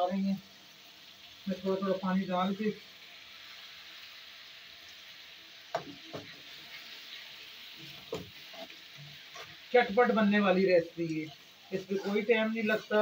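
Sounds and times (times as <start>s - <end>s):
sauce sizzling in a pan: 0.0s - 13.0s
metal spoon scraping a pan: 7.8s - 9.7s, 11.1s - 13.0s.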